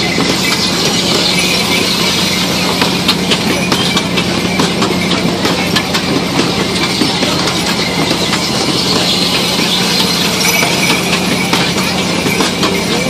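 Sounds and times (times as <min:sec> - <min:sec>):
ride machinery rumbling: 0:00.0 - 0:13.0
wooden carts clicking and rattling: 0:00.0 - 0:13.0.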